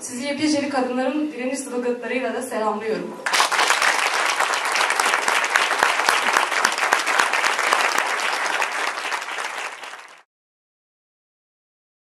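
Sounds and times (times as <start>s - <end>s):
audience clapping: 3.2s - 10.3s.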